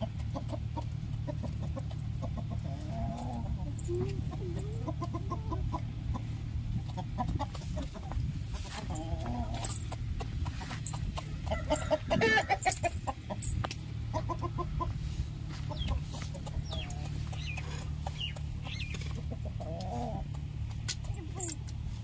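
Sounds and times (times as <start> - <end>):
rooster clucking: 0.0 - 21.6
steady low hum: 0.0 - 22.0
beak pecking in steel bowl: 15.8 - 21.6.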